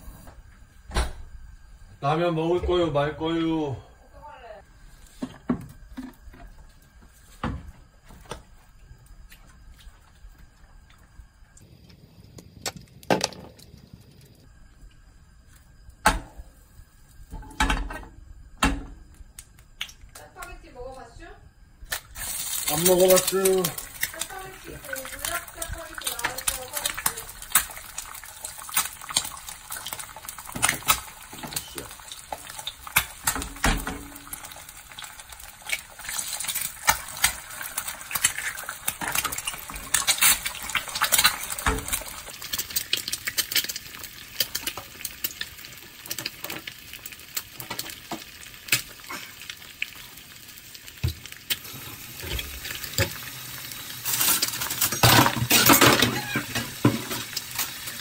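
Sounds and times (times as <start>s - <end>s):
eggs sizzling in oil: 1.4s - 58.0s
oil popping and crackling: 7.8s - 16.2s, 21.8s - 58.0s.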